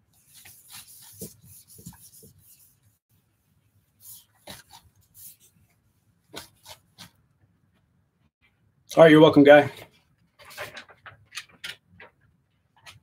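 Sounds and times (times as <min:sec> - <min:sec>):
eraser rubbing on whiteboard: 0:00.2 - 0:03.0.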